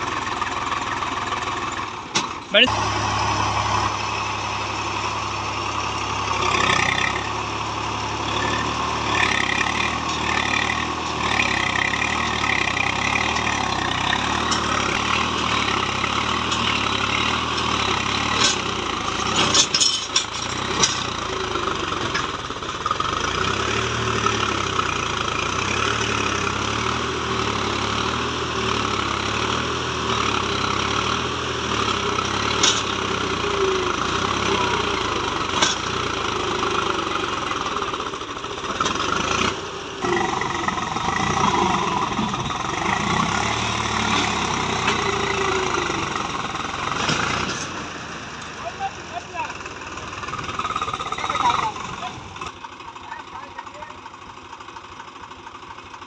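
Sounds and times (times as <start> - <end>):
tractor diesel engine under load: 0.0 - 56.0
sharp metal clanks: 18.2 - 21.2.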